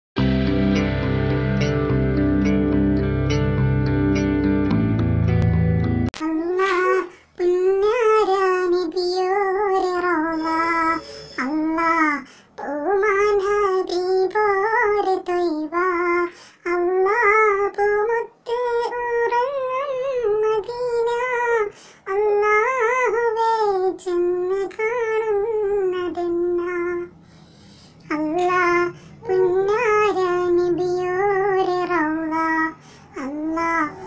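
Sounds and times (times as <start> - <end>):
high solo voice singing: 6.2 - 27.1, 28.0 - 34.0.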